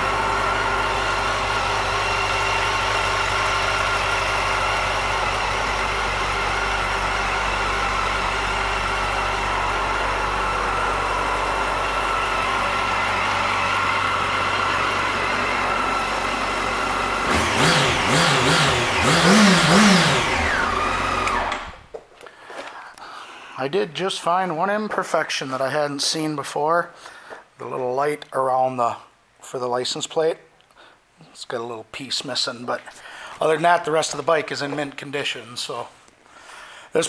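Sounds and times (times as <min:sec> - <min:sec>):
motorcycle engine idling and revving: 0:00.0 - 0:21.9.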